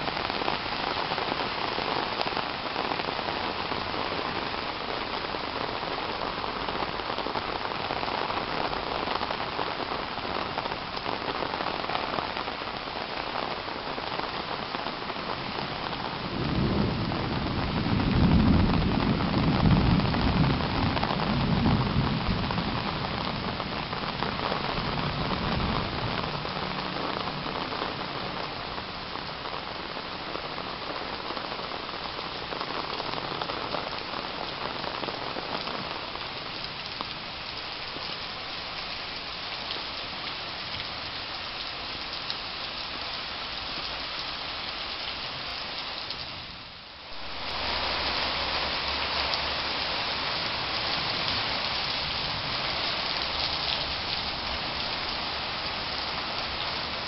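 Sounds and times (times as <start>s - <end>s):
rain on foliage and pavement: 0.0s - 57.0s
thunder rumbling: 15.8s - 28.2s.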